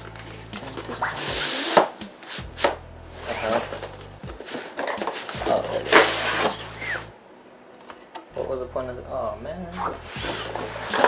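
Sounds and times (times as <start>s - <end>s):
cardboard rustling and scraping: 0.6s - 7.1s, 9.8s - 11.0s.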